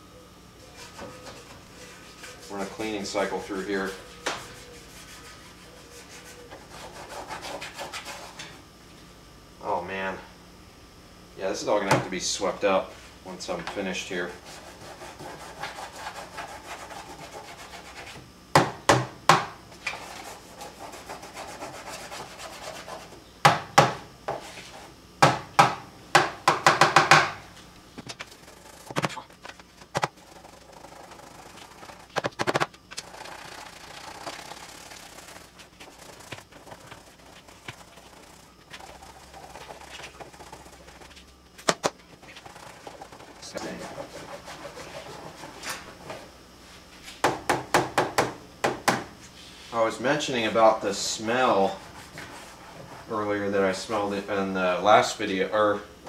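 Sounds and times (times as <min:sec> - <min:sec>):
hand scrubbing washer tub rim: 0:01.1 - 0:08.4, 0:30.0 - 0:32.2, 0:33.0 - 0:41.2, 0:42.2 - 0:45.9.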